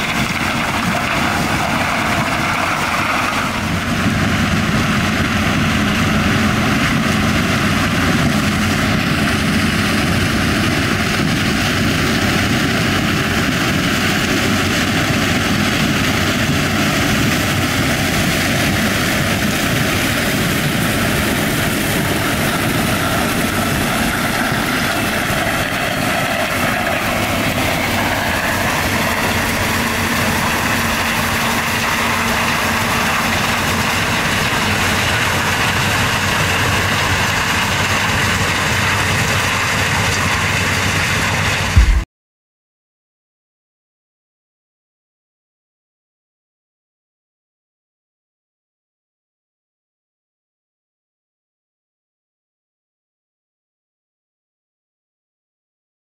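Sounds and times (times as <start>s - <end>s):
combine harvester engine drone: 0.0s - 42.0s
machine rushing noise: 16.9s - 42.0s.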